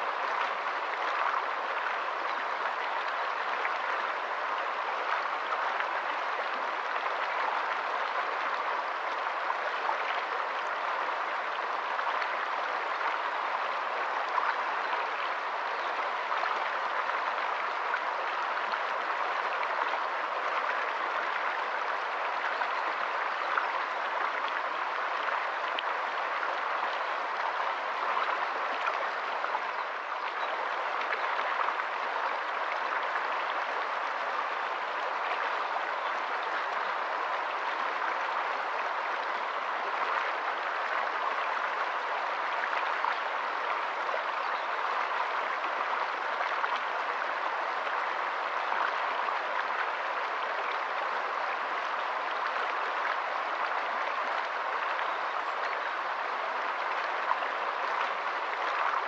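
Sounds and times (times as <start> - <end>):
stream running over rocks: 0.0 - 59.0.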